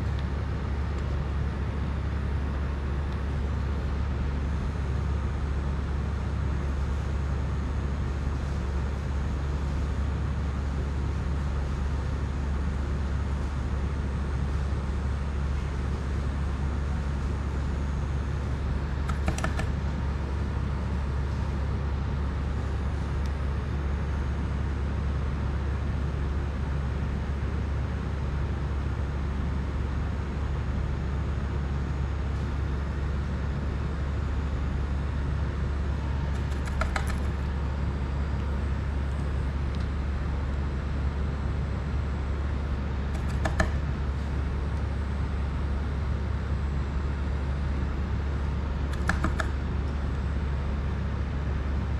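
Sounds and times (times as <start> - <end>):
low background hum: 0.0 - 51.9.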